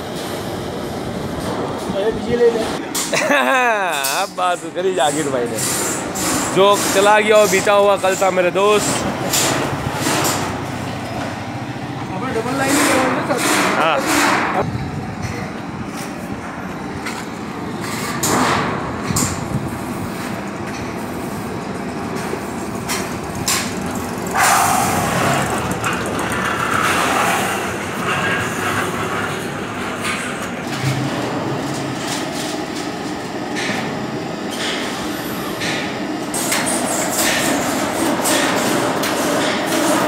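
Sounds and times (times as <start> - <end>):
steady rumbling din: 21.6 - 34.5.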